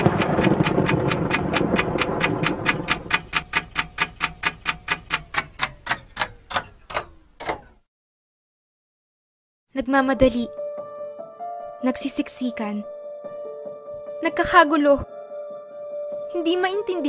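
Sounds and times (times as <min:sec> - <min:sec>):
rapid sharp ticking: 0:00.0 - 0:06.6.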